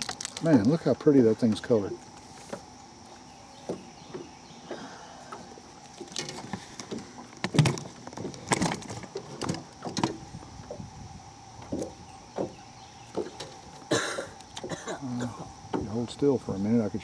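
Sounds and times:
tree frogs trilling: 0:00.0 - 0:17.0
fishing tackle rattling: 0:05.9 - 0:10.3.

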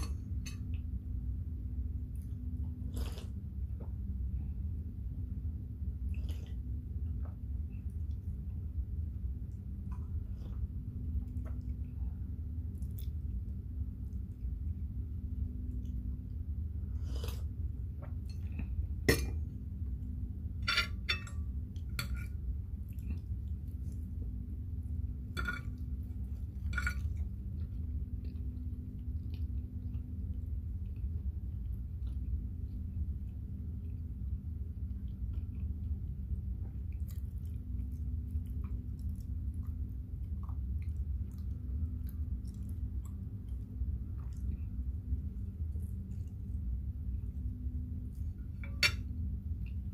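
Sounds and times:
low hum: 0:00.0 - 0:49.9
person chewing: 0:02.8 - 0:03.4.

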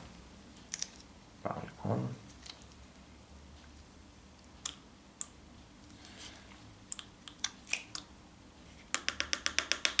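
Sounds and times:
plastic cup and stick clicks: 0:08.9 - 0:10.0.

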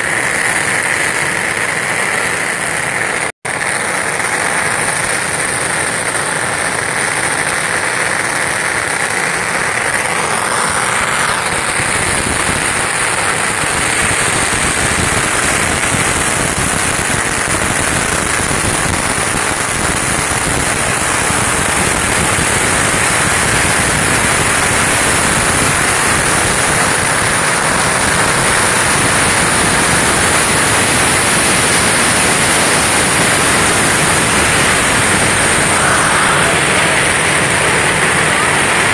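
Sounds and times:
firecrackers crackling: 0:00.0 - 0:38.9.

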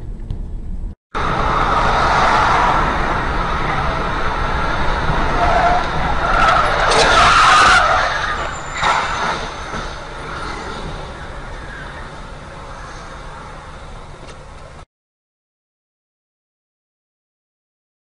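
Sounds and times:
car tyres skidding: 0:01.2 - 0:14.5.

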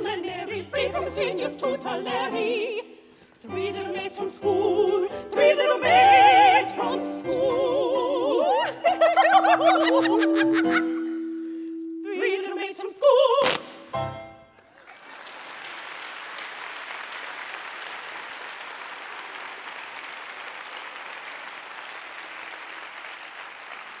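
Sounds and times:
audience applause: 0:14.6 - 0:24.0.

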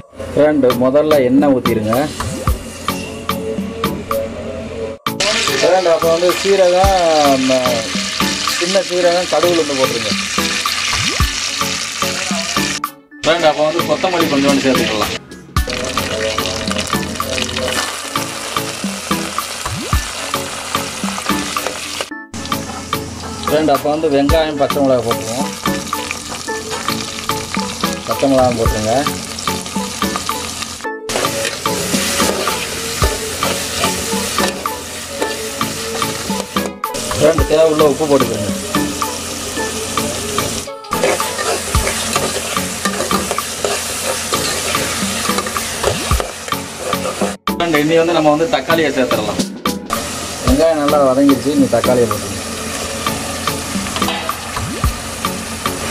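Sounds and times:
hot oil sizzling and crackling: 0:05.2 - 0:12.8, 0:13.8 - 0:23.7, 0:24.7 - 0:47.4, 0:49.9 - 0:55.9
spatula scraping pot: 0:31.1 - 0:36.6, 0:40.4 - 0:47.4.

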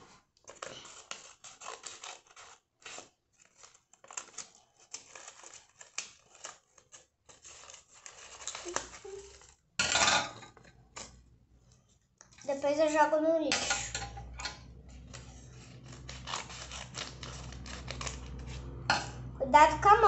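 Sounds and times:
paper rustling: 0:00.0 - 0:09.6, 0:14.9 - 0:18.8
scissors snipping paper: 0:00.4 - 0:09.6, 0:12.4 - 0:18.9.

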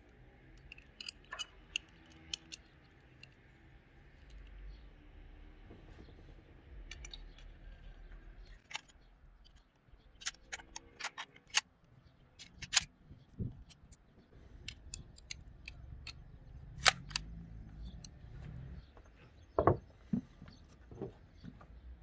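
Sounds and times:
shotgun parts clicking: 0:00.4 - 0:03.6, 0:06.8 - 0:18.2.

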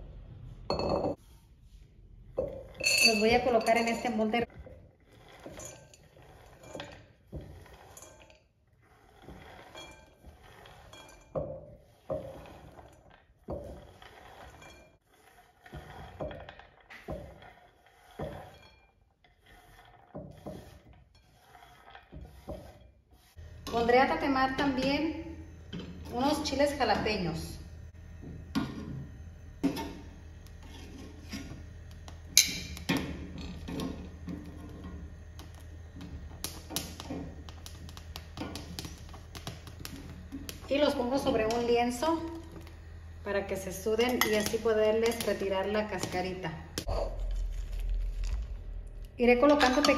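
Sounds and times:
low steady hum: 0:23.4 - 0:49.9.

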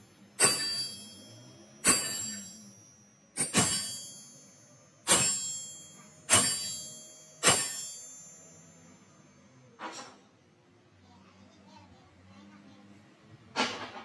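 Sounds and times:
hammer blows on steel: 0:00.4 - 0:01.2, 0:03.4 - 0:04.4, 0:05.0 - 0:08.2.

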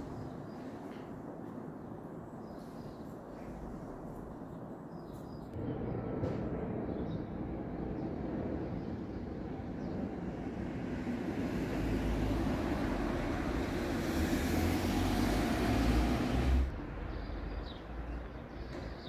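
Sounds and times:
vehicle engine approaching: 0:05.6 - 0:17.8.

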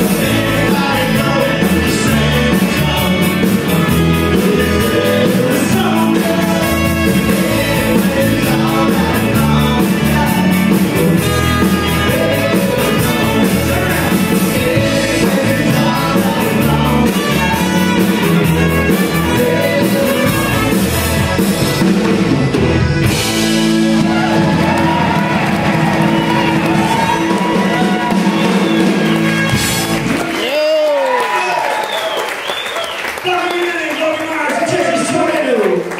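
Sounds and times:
trumpet: 0:00.0 - 0:09.0, 0:11.0 - 0:30.3
man singing into a microphone: 0:00.0 - 0:20.8
button accordion: 0:00.0 - 0:23.9, 0:28.1 - 0:30.1
country band playing: 0:00.0 - 0:35.9.

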